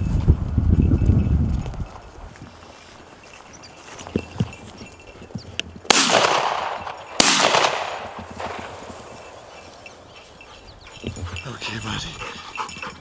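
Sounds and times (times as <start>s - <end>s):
shotgun blasts with echo: 5.9s - 8.9s.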